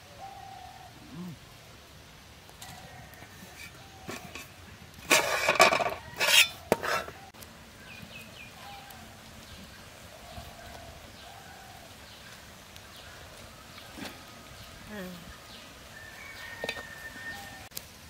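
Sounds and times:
metal pot lid clanking: 3.6s - 7.2s, 16.6s - 16.8s
faint bird calls: 6.0s - 17.7s.

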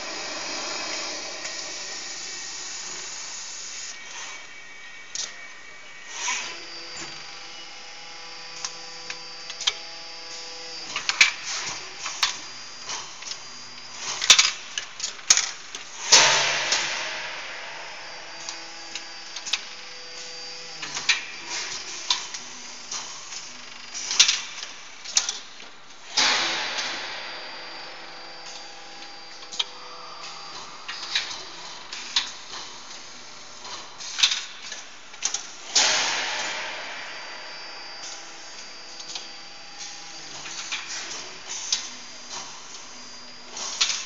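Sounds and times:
compressed air hiss: 0.0s - 4.3s, 29.5s - 38.6s
machine hum: 0.0s - 44.0s.

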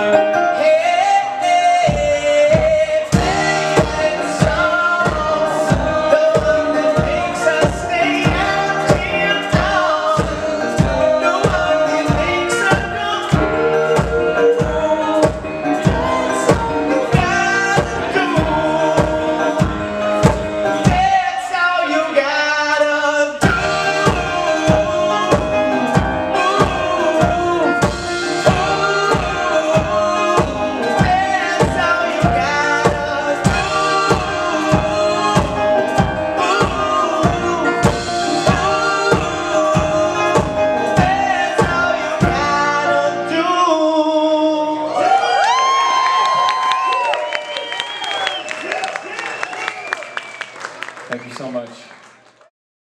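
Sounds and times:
acoustic guitar: 0.0s - 22.3s, 23.3s - 44.9s
man singing: 0.0s - 45.2s
keyboard: 0.0s - 49.8s
drum beat: 1.9s - 21.1s, 23.4s - 42.6s.

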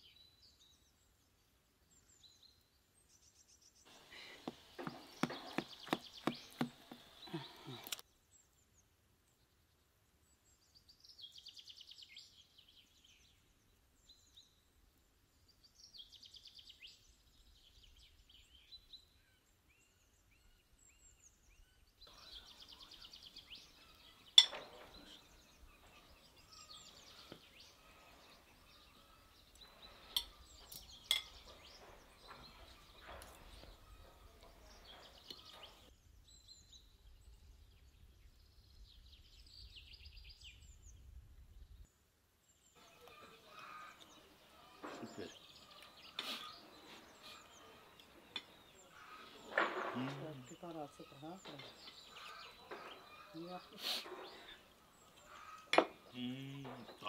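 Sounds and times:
songbird trills: 1.9s - 8.8s, 15.5s - 41.8s, 42.5s - 57.0s
cutlery clinking on metal tray: 24.4s - 25.2s, 30.1s - 31.7s.

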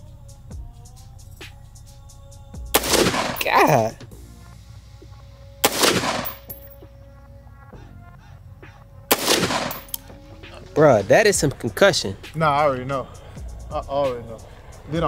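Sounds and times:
pistol gunshots: 2.8s - 3.8s, 5.6s - 6.7s, 9.1s - 10.1s.

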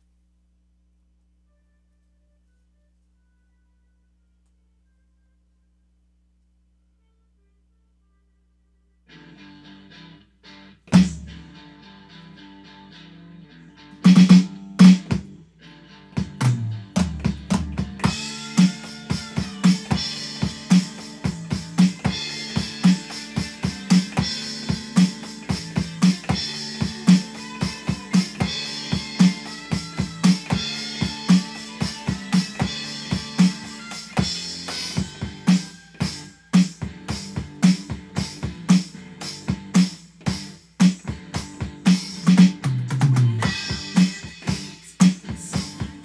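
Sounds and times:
electronic drum kit playing: 10.9s - 11.5s, 14.0s - 15.3s, 16.2s - 46.0s
hard rock backing track: 10.9s - 12.9s, 13.8s - 46.0s.

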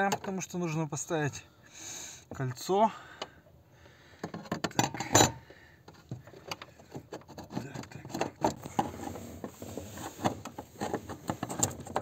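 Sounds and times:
clicks and knocks of parts: 0.0s - 0.5s, 4.2s - 12.0s.

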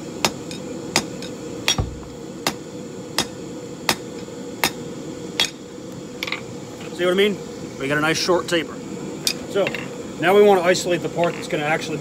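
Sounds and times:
hammer striking metal on anvil: 1.7s - 2.2s.

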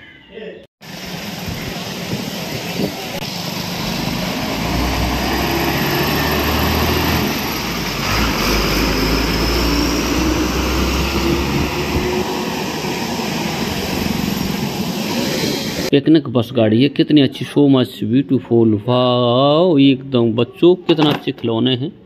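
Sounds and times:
bus diesel engine passing: 0.8s - 15.9s.

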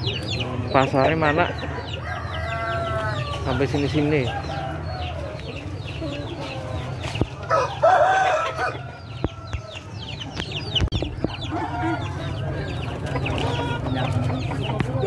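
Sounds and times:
chickens clucking: 0.0s - 15.0s
rooster crowing: 1.8s - 5.2s, 7.5s - 9.5s.

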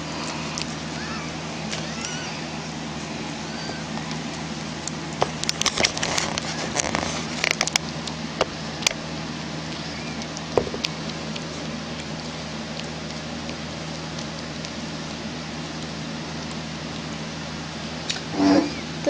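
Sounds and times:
steady low hum: 0.0s - 19.0s
cat licking with wet clicks: 9.7s - 17.2s.

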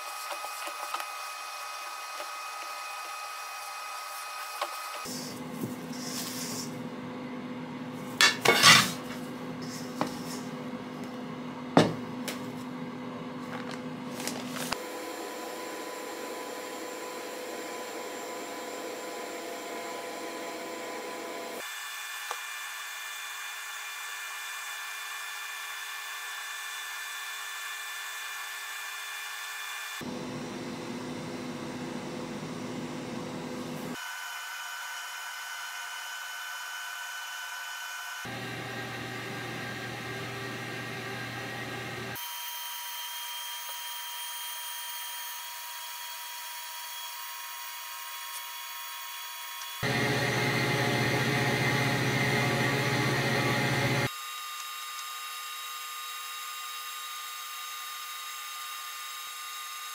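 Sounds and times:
spatula scraping metal bowl: 8.4s - 9.0s.

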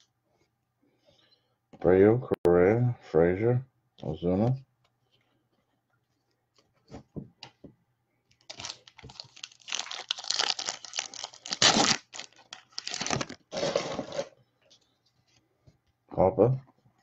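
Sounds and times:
foil wrapper tearing and crinkling: 8.5s - 14.3s.

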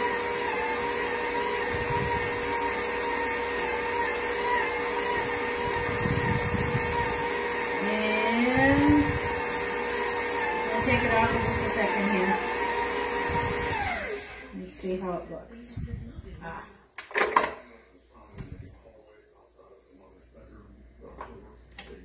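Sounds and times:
stand mixer motor whine: 0.0s - 14.6s.

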